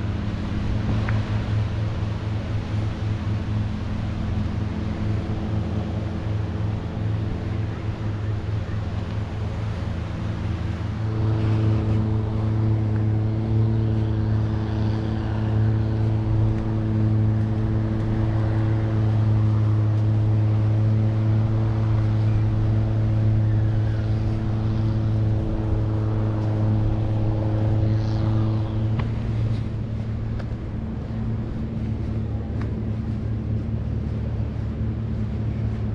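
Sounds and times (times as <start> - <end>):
boat engine droning: 0.0 - 35.9
wind on microphone: 0.0 - 35.9.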